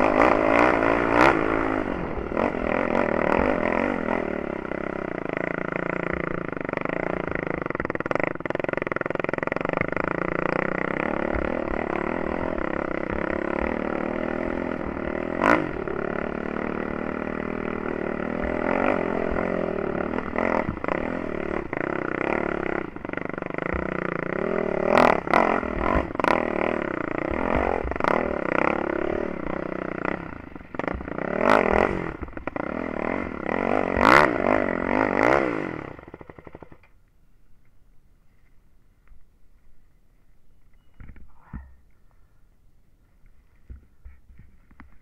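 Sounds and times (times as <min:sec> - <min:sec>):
quad engine running under load: 0:00.0 - 0:37.1.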